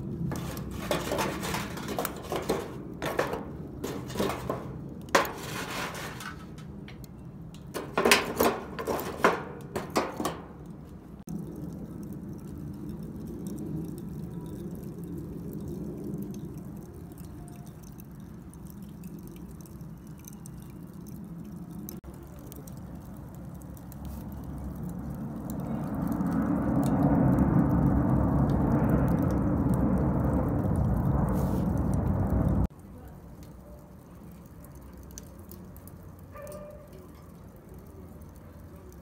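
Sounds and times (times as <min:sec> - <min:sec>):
charcoal lumps clinking on tongs: 0:00.3 - 0:06.7, 0:07.6 - 0:10.6.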